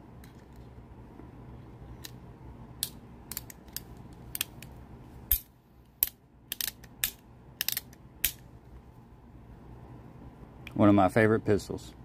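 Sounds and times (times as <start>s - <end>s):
faint steady hum: 0.0s - 12.0s
revolver cylinder metallic clicks: 5.3s - 8.4s.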